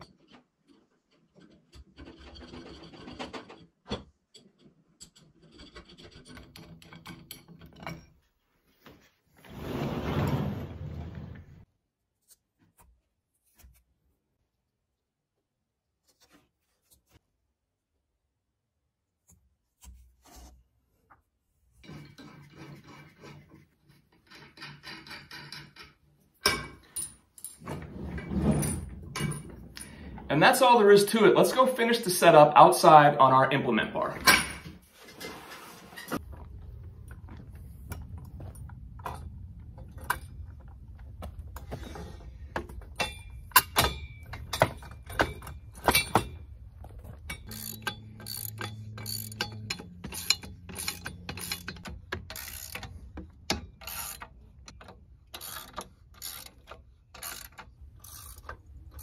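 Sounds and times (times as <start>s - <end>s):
nuts threading metal rasp: 0.0s - 8.2s, 21.8s - 27.0s, 43.0s - 59.0s
metal parts rubbing and scraping: 21.8s - 31.1s, 34.4s - 36.6s, 41.6s - 53.2s.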